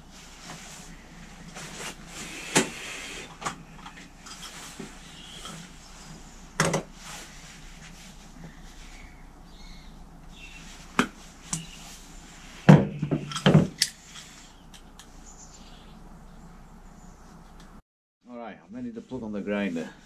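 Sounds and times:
tools knocking on a workbench: 12.7 - 13.8.

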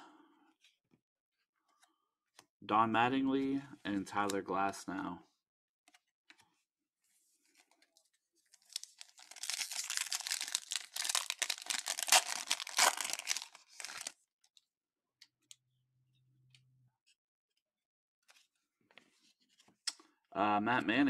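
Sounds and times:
foil wrapper tearing and crinkling: 8.6 - 14.1.

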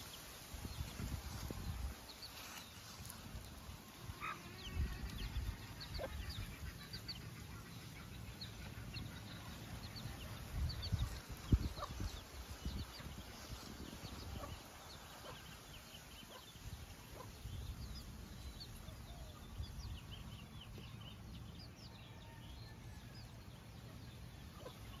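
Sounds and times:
wind on microphone: 0.5 - 2.1, 10.0 - 15.4
chickens clucking: 1.0 - 17.7, 24.3 - 25.0.

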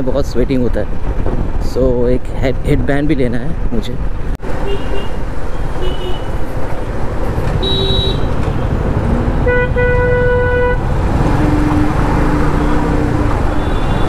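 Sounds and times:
road noise: 0.0 - 14.0
vehicle horns honking: 4.6 - 6.4, 7.5 - 8.7, 9.4 - 14.0.

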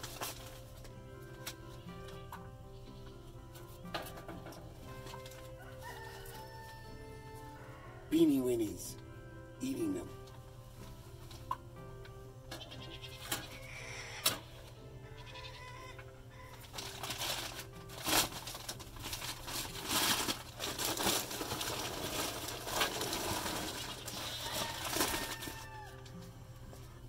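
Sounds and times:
loud rustling and scraping: 16.6 - 25.6.

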